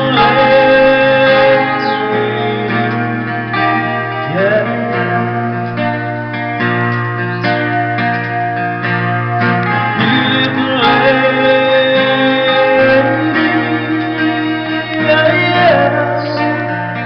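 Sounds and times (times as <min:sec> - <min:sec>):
man singing: 0:00.0 - 0:06.0, 0:09.7 - 0:17.0
acoustic guitar strumming: 0:00.0 - 0:17.0.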